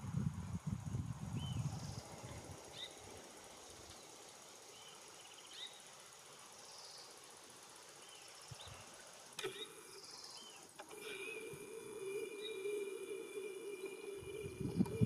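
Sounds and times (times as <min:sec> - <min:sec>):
steady hum: 0:09.3 - 0:15.0.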